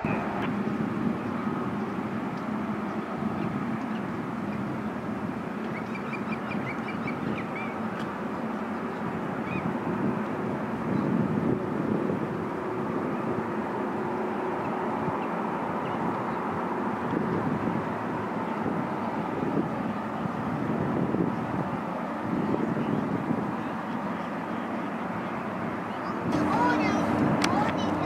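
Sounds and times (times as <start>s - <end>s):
jet engines rumbling: 0.0s - 28.0s
birds chirping: 5.6s - 9.7s, 23.6s - 28.0s.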